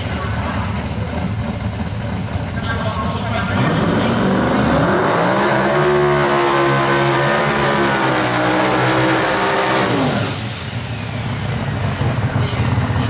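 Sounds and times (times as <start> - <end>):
car engine revving high: 3.2 - 10.9.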